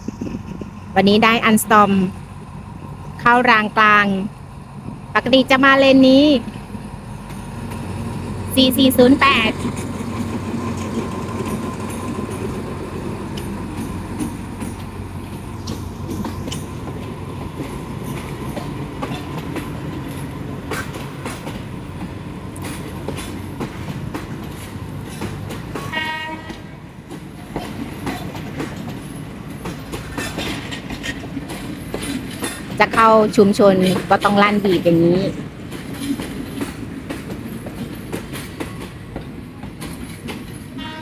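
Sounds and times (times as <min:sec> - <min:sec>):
locomotive engine drone: 0:00.0 - 0:37.8
wheels clicking over rail joints: 0:06.0 - 0:41.0
train horn toot: 0:25.8 - 0:26.8, 0:40.8 - 0:41.0.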